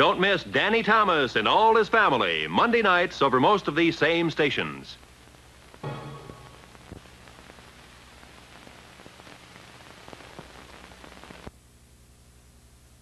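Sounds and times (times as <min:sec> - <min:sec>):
tape hiss: 0:00.0 - 0:13.0
faint crackles and clicks: 0:05.0 - 0:12.9
steady low hum: 0:05.1 - 0:09.4.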